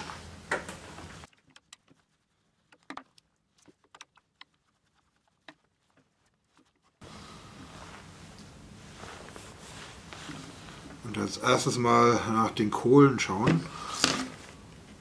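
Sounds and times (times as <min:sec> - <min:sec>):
tool handled on bench: 0:13.4 - 0:14.4.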